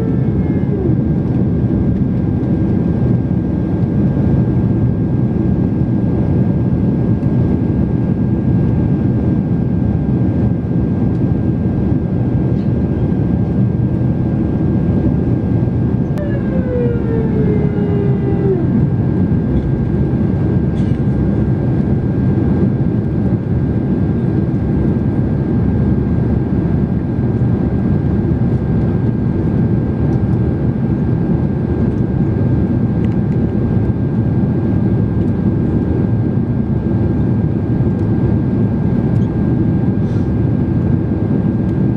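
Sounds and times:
jet cabin engine noise: 0.0 - 41.9
downward gliding tone: 16.2 - 19.1.

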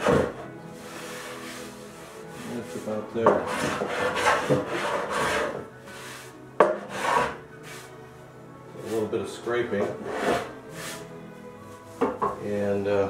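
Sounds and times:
hand tool rasping on wood: 0.0 - 7.9, 9.8 - 11.0.

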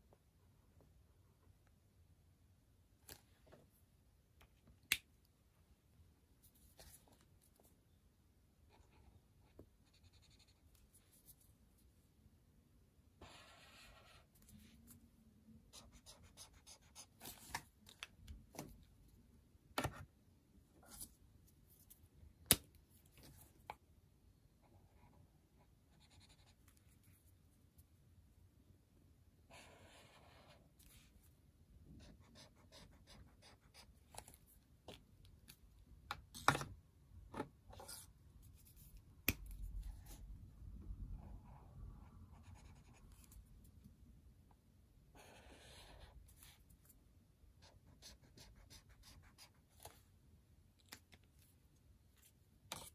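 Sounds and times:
highlighter scratching on paper: 8.7 - 11.4, 13.2 - 14.9, 15.7 - 17.5, 25.9 - 26.6, 29.5 - 31.0, 32.0 - 34.0, 42.3 - 43.4, 45.2 - 46.6, 47.6 - 50.0.

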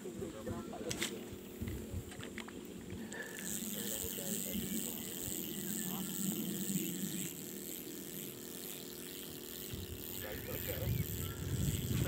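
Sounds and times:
high-pitched insect chorus: 3.0 - 12.0.

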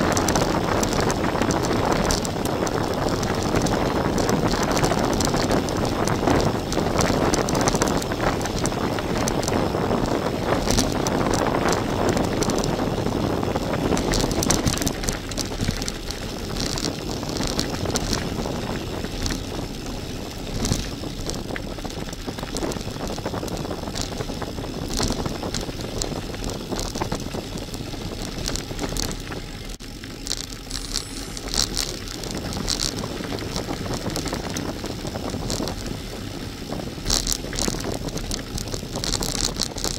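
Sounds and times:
bike tyres on gravel: 0.0 - 39.9
stones clicking and rattling: 24.9 - 35.9, 37.0 - 39.9
rushing air: 30.6 - 32.9.

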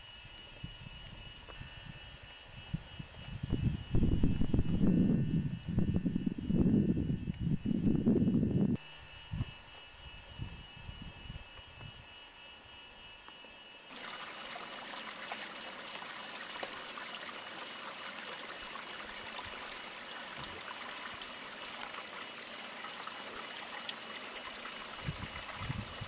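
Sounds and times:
running water rushing: 13.9 - 26.0.

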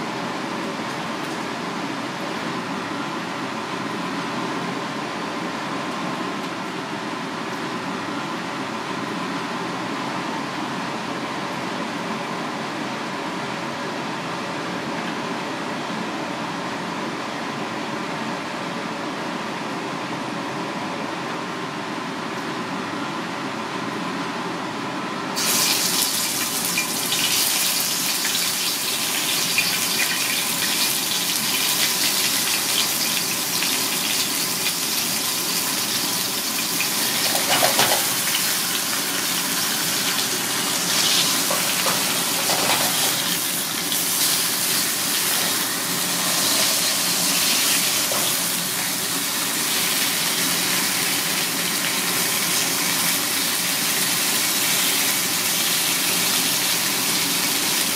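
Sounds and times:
fish sizzling in hot oil: 25.4 - 57.9.

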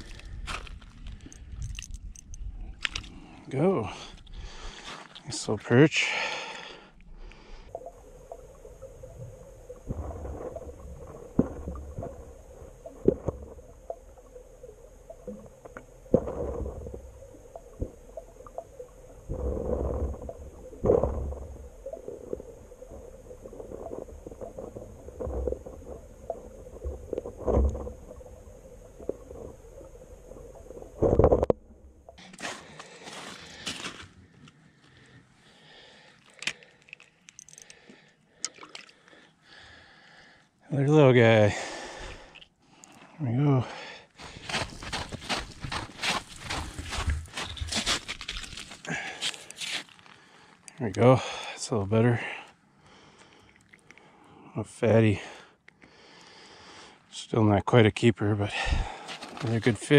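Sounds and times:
faint steady hum: 0.0 - 59.9
muffled underwater knocks and thumps: 7.8 - 32.2
rustling and scraping: 32.2 - 35.0, 44.2 - 50.2.

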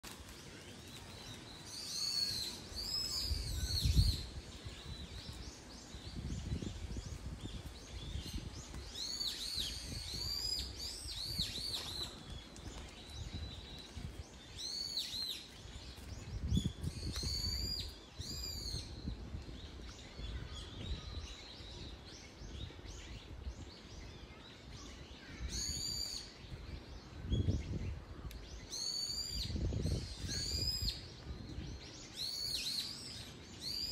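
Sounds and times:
birds calling high-pitched: 23.9 - 33.9.

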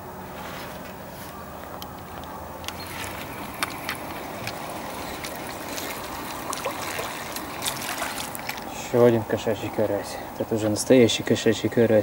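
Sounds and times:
water splashing and trickling: 2.7 - 10.1.

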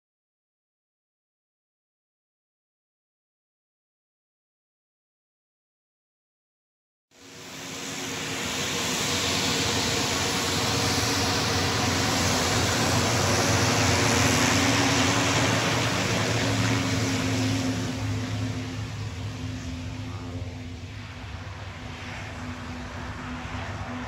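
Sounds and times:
turboprop aircraft taxiing: 7.2 - 24.0.

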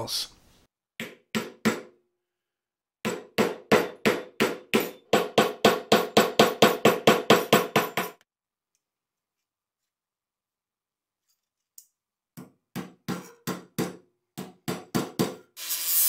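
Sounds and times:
hammer striking wooden block: 3.0 - 8.2, 12.4 - 15.4.

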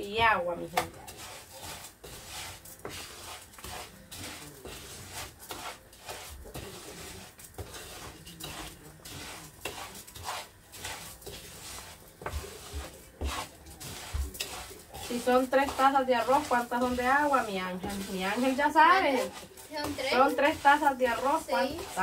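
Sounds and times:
wooden spatula scraping rice in skillet: 0.0 - 22.0.

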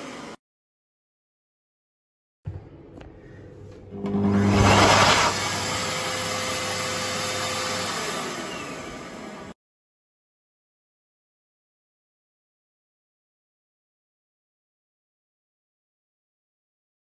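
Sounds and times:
hand dryer humming and whining: 0.0 - 0.4, 3.7 - 9.6.

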